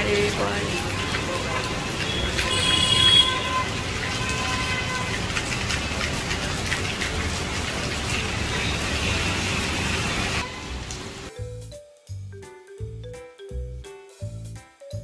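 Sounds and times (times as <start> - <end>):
heavy rain on street: 0.0 - 11.3.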